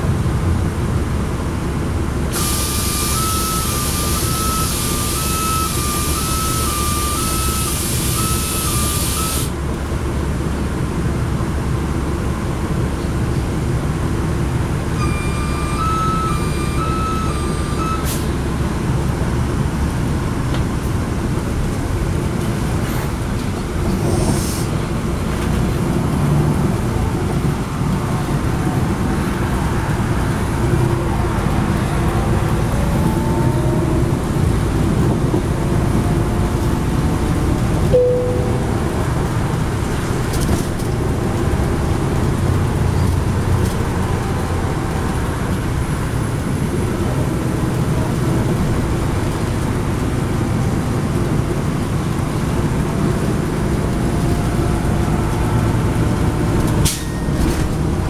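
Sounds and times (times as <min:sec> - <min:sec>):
diesel bus engine rumble: 0:00.0 - 0:58.0
brief beep: 0:03.1 - 0:09.5, 0:15.0 - 0:18.1, 0:38.0 - 0:38.8
electronic beeping tune: 0:15.0 - 0:18.1, 0:38.0 - 0:39.0
tyre and road noise: 0:15.6 - 0:58.0.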